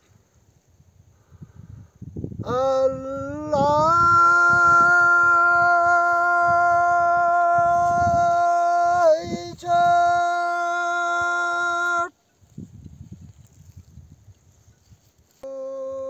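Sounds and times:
elderly man singing unaccompanied: 2.4s - 12.1s, 15.4s - 16.0s.

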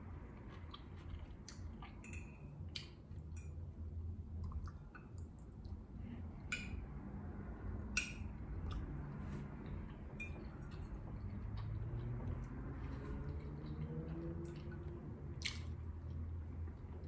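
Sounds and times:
quiet chewing: 0.3s - 3.4s, 8.6s - 17.0s.

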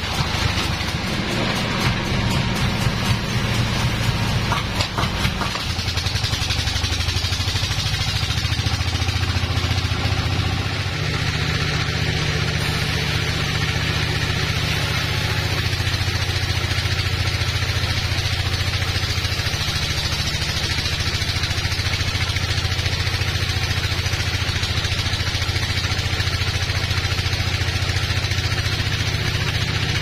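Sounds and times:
band sawmill drive droning: 0.0s - 30.0s
saw blade cutting log hiss: 12.2s - 21.9s.

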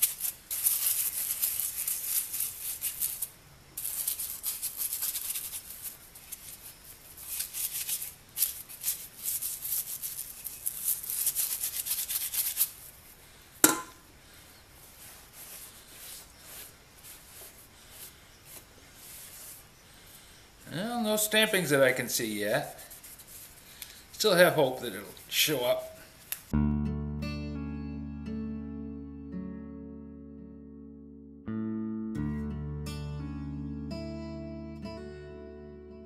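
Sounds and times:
bristle brush scrubbing metal: 14.8s - 19.7s, 21.1s - 23.7s.

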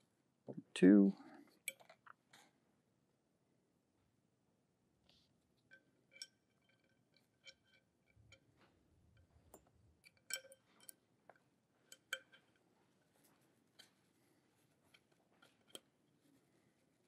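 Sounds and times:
metallic clicks of screws and allen key: 1.5s - 2.0s, 5.7s - 8.5s, 9.2s - 12.6s, 14.8s - 15.9s.

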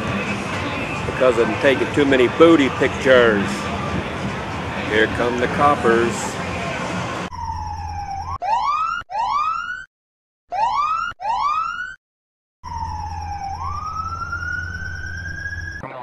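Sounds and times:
police siren whooping: 7.3s - 9.9s, 10.5s - 12.0s, 12.6s - 15.9s.

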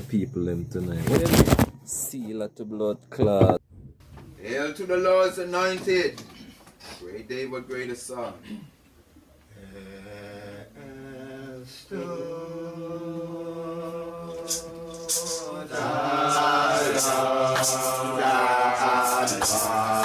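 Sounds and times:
voices chanting a hymn: 9.5s - 20.0s.

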